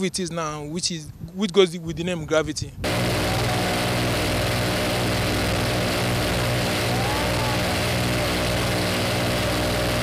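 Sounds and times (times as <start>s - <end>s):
helicopter engines and rotors running: 2.8s - 10.0s.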